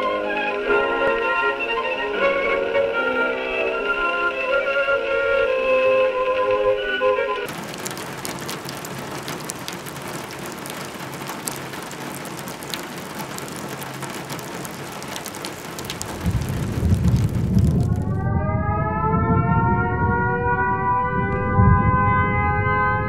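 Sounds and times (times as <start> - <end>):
steady rain falling: 0.0 - 3.0, 7.4 - 18.3
rumble of thunder: 15.5 - 23.0.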